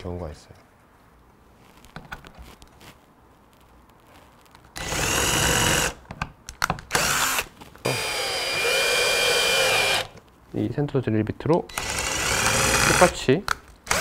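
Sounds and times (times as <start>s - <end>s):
cordless drill boring into wood: 4.8s - 6.0s, 6.9s - 10.2s, 11.7s - 13.2s.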